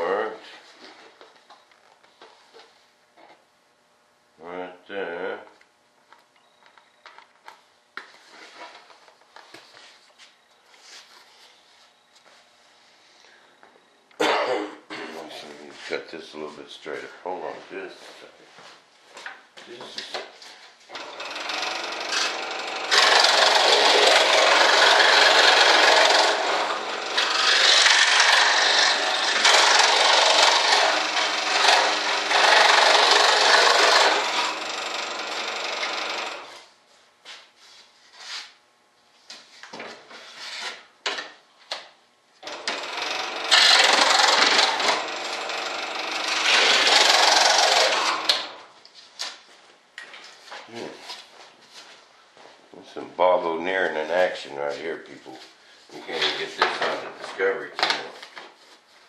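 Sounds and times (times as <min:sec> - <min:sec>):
saw cutting through board: 0:20.9 - 0:36.6, 0:42.5 - 0:48.7.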